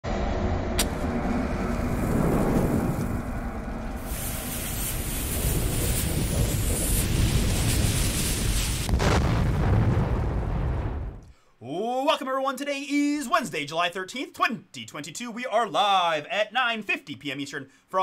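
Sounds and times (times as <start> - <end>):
fire rumble: 0.1 - 11.3
burning fuse hissing: 1.7 - 9.2.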